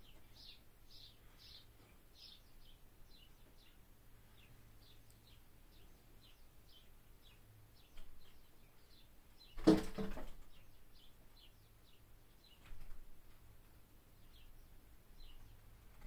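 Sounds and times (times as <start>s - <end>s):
bird chirps: 0.0s - 9.7s.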